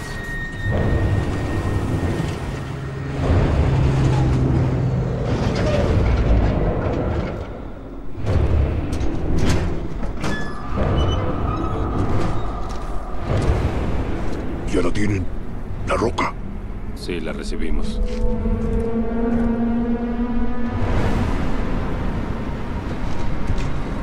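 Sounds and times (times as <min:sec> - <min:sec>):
dark film score: 0:00.0 - 0:24.0
heavy truck engines rumbling: 0:00.0 - 0:24.0.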